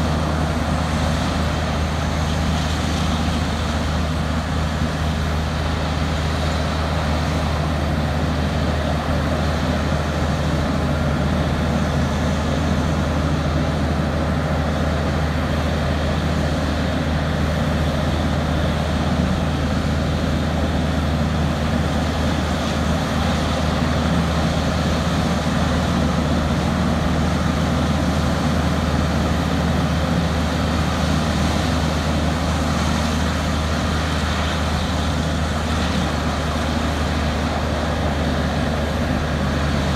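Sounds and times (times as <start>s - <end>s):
heavy diesel engines running: 0.0s - 39.9s.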